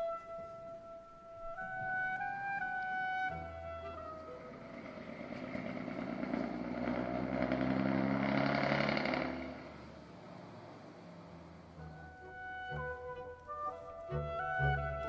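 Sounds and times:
diesel railcar engine pulling away: 3.3 - 15.0.

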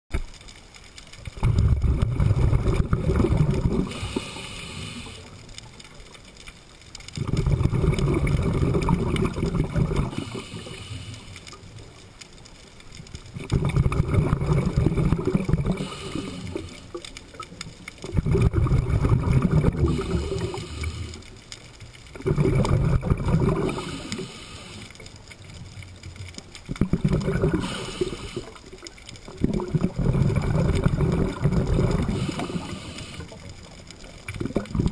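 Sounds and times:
gurgling exhaled bubbles: 1.3 - 5.3, 7.1 - 11.1, 13.3 - 21.3, 22.1 - 24.8, 26.5 - 34.9
regulator inhale hiss: 3.8 - 5.5, 10.0 - 11.7, 15.6 - 17.1, 19.6 - 21.5, 23.5 - 25.1, 27.5 - 28.9, 31.9 - 33.5.

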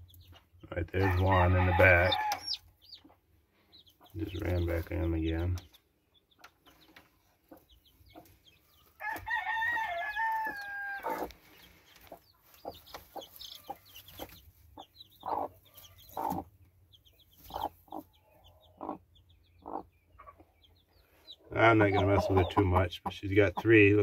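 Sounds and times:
chicks peeping: 0.0 - 24.0
hen clucking: 0.0 - 24.0
rooster crowing: 1.0 - 2.6, 9.0 - 11.3.

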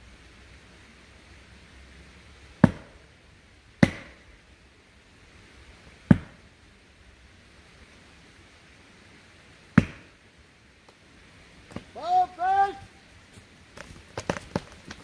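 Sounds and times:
axe blows on tree trunk: 2.6 - 3.0, 3.8 - 4.2, 6.1 - 6.4, 9.8 - 10.2.

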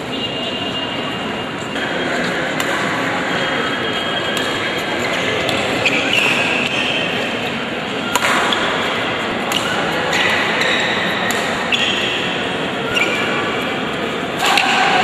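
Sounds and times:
crowd chatter in a hall: 0.0 - 15.0
racket hitting shuttlecock: 2.5 - 3.0, 4.3 - 4.7, 8.0 - 12.3, 14.4 - 15.0.

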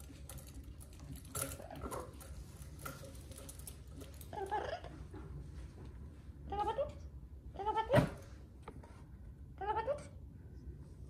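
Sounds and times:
parrot calls: 4.3 - 5.0.

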